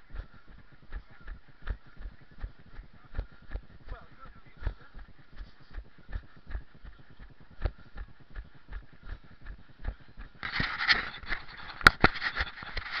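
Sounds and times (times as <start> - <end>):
footsteps on grass: 0.0 - 13.0
scratchy rustling: 10.3 - 13.0.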